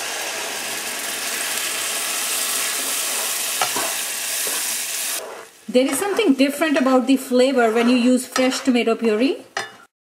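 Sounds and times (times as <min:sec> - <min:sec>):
tomato puree sizzling in a pan: 0:00.0 - 0:08.8
spatula stirring: 0:02.5 - 0:09.8.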